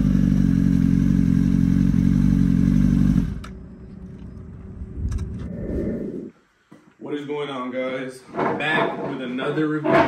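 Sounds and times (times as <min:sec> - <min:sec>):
motorcycle engine running: 0:00.0 - 0:03.7
faint low rumble: 0:03.4 - 0:06.4.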